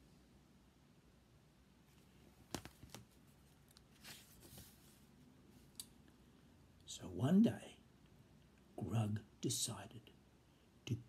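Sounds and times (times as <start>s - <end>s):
paper rustle: 2.4s - 5.1s.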